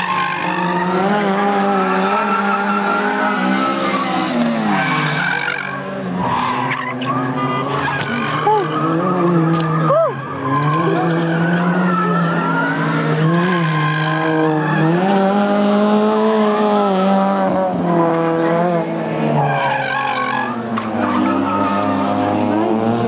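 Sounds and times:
tyres squealing on tarmac: 0.0s - 15.0s, 19.4s - 22.2s
race car engines revving: 0.0s - 23.0s.

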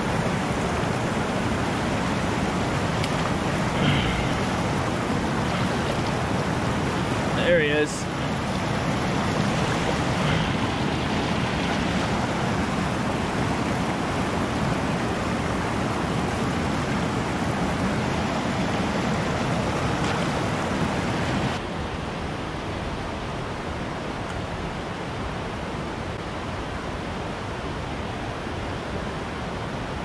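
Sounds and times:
river rushing over rocks: 0.0s - 30.0s.

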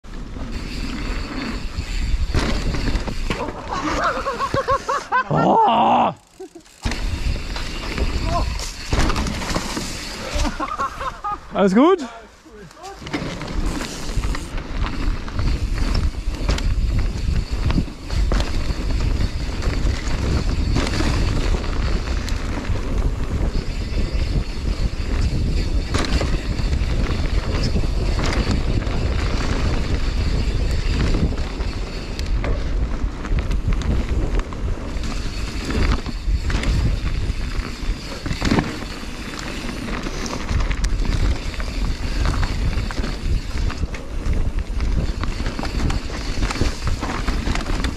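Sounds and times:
bike knocks and rattles: 0.4s - 4.8s, 6.4s - 10.9s, 12.8s - 47.9s
tyres rolling over dirt and leaves: 6.6s - 11.4s, 25.1s - 47.9s
wind buffeting microphone: 13.9s - 47.9s.

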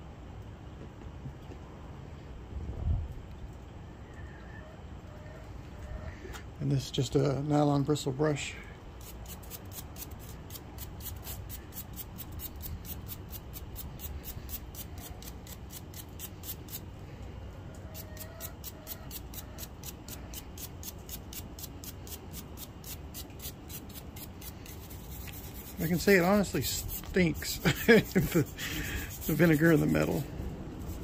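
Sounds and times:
brush scrubbing steel file: 9.0s - 16.8s, 17.9s - 31.0s.

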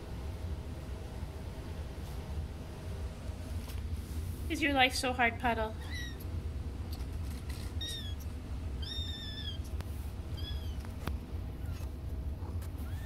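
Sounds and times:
low steady hum: 0.0s - 13.0s
kittens mewing: 7.0s - 10.9s.

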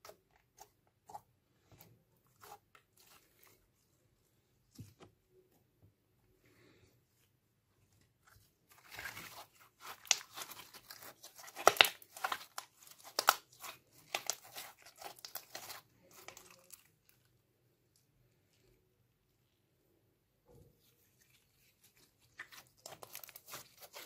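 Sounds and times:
slime squishing and crackling: 8.7s - 17.2s, 21.8s - 24.0s.

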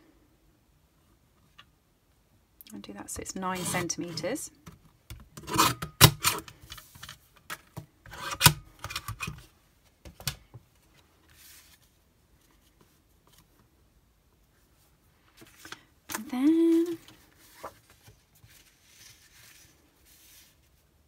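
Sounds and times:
paper handling: 15.3s - 20.8s.

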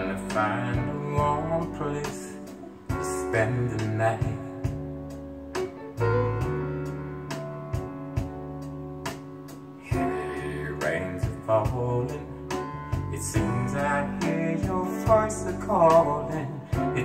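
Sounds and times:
man singing: 0.0s - 4.9s, 9.8s - 17.0s
soul ballad over loudspeakers: 0.0s - 17.0s.

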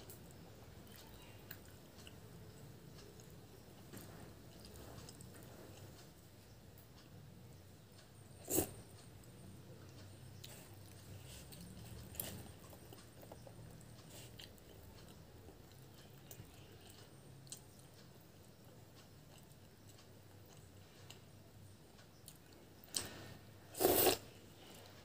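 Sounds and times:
chewing and mouth sounds: 9.9s - 21.3s.

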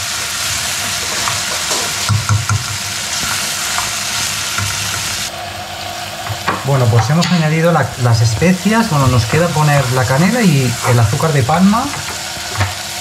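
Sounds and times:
food sizzling in oil: 0.0s - 13.0s
wooden spoon scraping pot: 0.6s - 5.3s, 8.0s - 12.9s.

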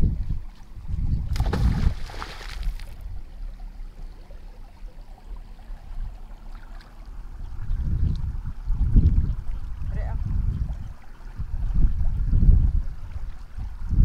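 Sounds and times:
low steady rumble: 0.0s - 14.0s
magnet splashing into water: 1.3s - 3.0s.

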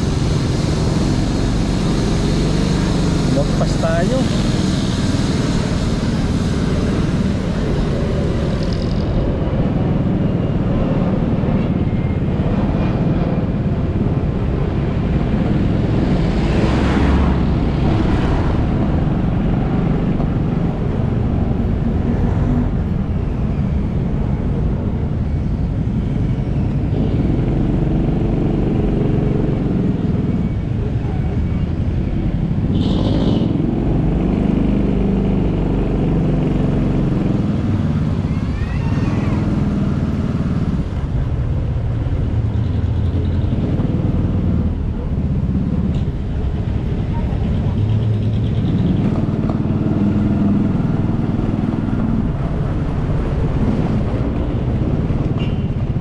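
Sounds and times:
motorcycle engine and road rumble: 0.0s - 56.0s
vehicle passing by: 9.7s - 23.2s.

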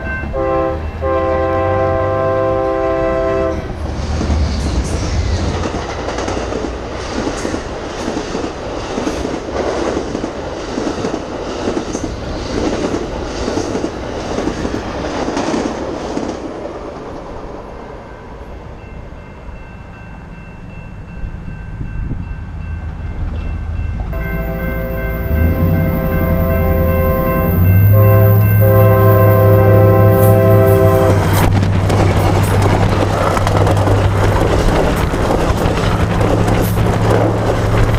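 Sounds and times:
diesel locomotive passing: 0.0s - 37.9s
rumble of departing train: 0.0s - 37.9s
train wheels clacking over rail joints: 29.8s - 37.9s.

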